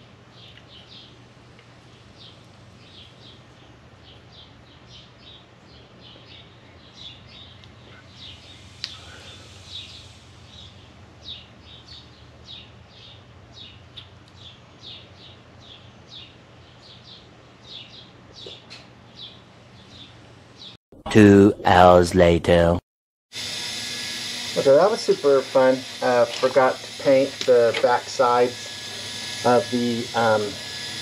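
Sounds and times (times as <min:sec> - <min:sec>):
steady low hum: 0:00.0 - 0:22.8, 0:23.4 - 0:31.0
bird chirping: 0:01.9 - 0:20.8.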